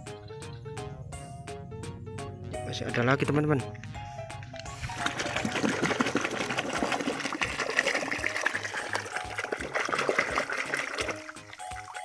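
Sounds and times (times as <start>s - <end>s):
background music with steady beat: 0.0s - 12.0s
water splashing and sloshing: 4.0s - 12.0s.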